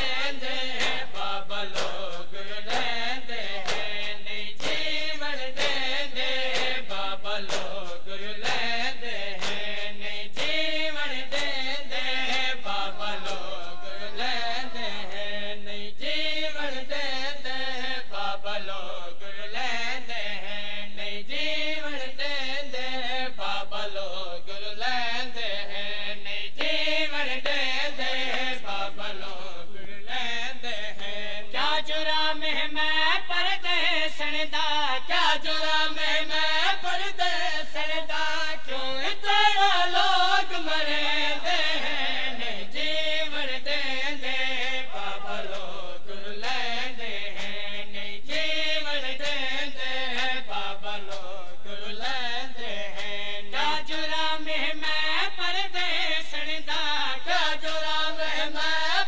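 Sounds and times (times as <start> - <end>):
men chanting a lament: 0.0 - 59.0
hands slapping bare chests: 0.7 - 5.0, 5.6 - 9.8, 10.4 - 10.6, 50.1 - 50.4, 51.0 - 51.4.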